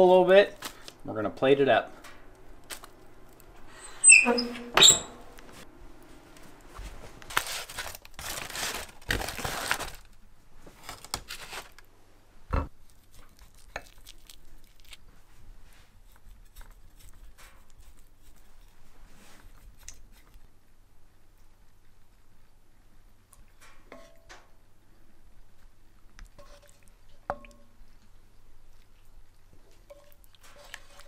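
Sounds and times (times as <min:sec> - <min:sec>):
aluminium foil crinkling and tearing: 0:00.5 - 0:01.0, 0:02.6 - 0:03.5, 0:07.2 - 0:11.9, 0:12.8 - 0:15.2.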